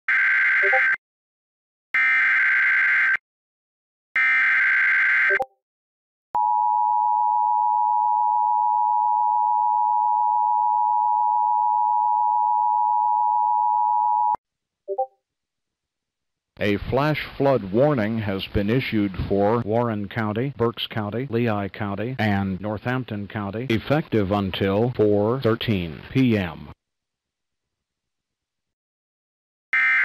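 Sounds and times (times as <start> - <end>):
buzzing digital data squawk: 0.1 - 1.0, 29.8 - 30.0.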